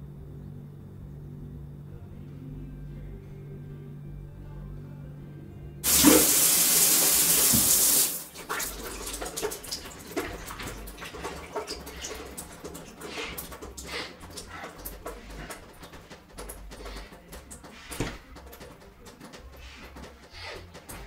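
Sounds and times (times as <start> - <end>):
water splashing: 5.8 - 14.2
water tap running: 5.8 - 18.5.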